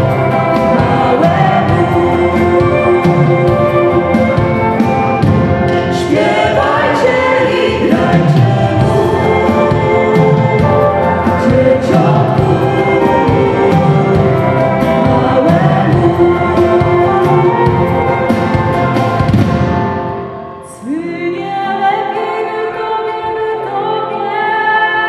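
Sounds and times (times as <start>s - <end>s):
held sung notes: 0.0s - 19.3s
people singing: 0.0s - 19.3s, 20.6s - 25.0s
drums: 0.0s - 20.7s
live band playing a carol: 0.0s - 20.8s.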